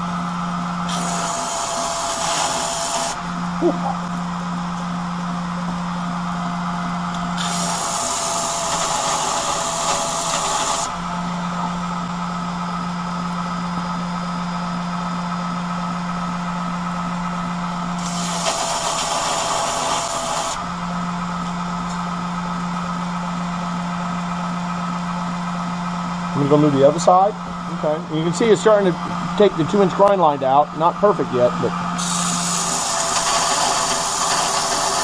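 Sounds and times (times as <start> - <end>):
belt grinder humming: 0.8 - 3.6, 7.1 - 11.7, 18.0 - 20.8, 31.1 - 35.0
blade grinding rasp: 0.9 - 3.2, 7.4 - 10.9, 18.0 - 20.6, 32.0 - 35.0.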